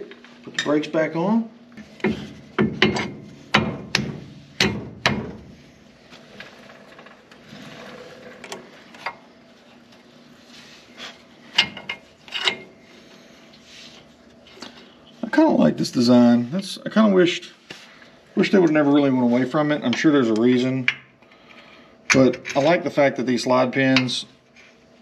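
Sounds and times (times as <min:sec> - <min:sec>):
metal clanks and knocks: 0:01.8 - 0:05.4.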